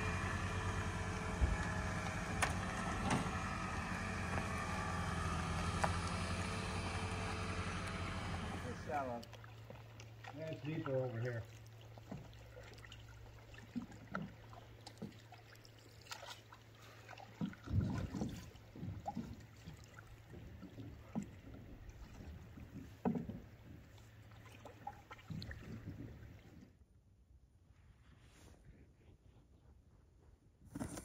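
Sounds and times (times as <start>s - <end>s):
paddle splashing through water: 0.2s - 26.6s
paddle knocks: 17.4s - 24.1s.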